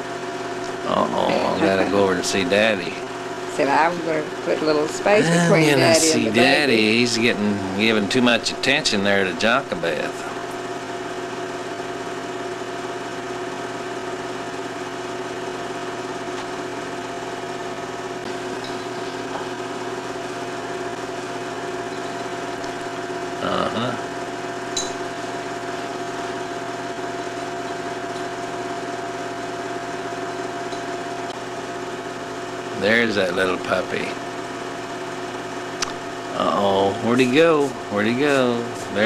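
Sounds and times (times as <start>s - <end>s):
film projector whirring: 0.0s - 23.4s, 24.0s - 39.0s.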